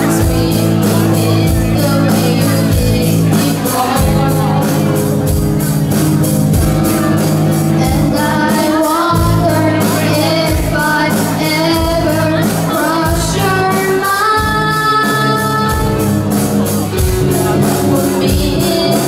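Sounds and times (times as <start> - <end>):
woman singing: 0.0 - 5.2, 7.6 - 16.2, 17.6 - 19.0
live rock band playing: 0.0 - 19.0.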